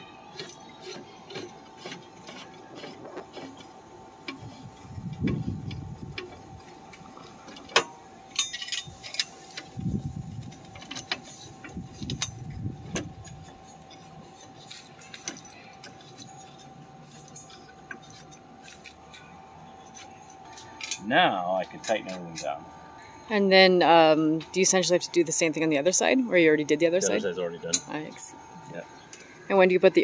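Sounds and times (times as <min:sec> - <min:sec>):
faint steady hum: 0:00.0 - 0:30.0
metal bolts clinking: 0:07.5 - 0:09.7, 0:14.7 - 0:19.0, 0:19.8 - 0:21.0.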